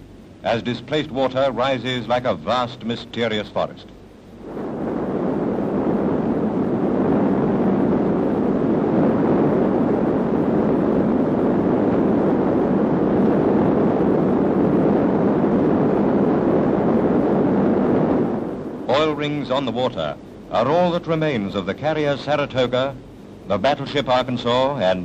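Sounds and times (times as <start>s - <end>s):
steady rumbling roar: 4.0s - 24.0s.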